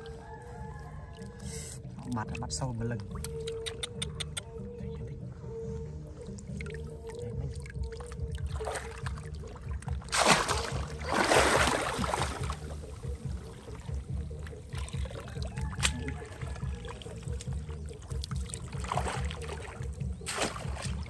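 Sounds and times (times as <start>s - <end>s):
background music: 0.0s - 21.0s
hands splashing in water: 7.8s - 21.0s.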